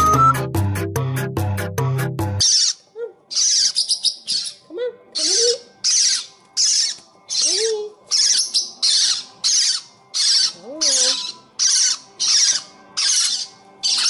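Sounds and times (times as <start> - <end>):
parrotlets squawking: 2.4 - 4.6, 5.2 - 14.0.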